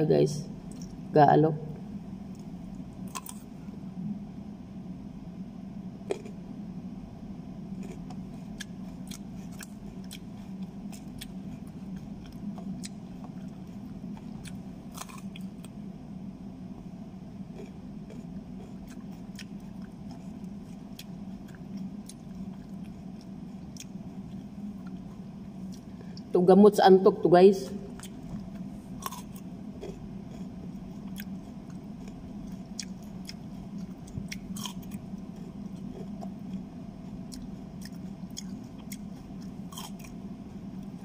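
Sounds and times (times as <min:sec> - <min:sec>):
steady low hum: 0:00.0 - 0:41.0
chewing crunches: 0:00.6 - 0:01.1, 0:02.2 - 0:03.6, 0:06.0 - 0:06.4, 0:07.7 - 0:15.8, 0:17.4 - 0:26.2, 0:27.9 - 0:41.0.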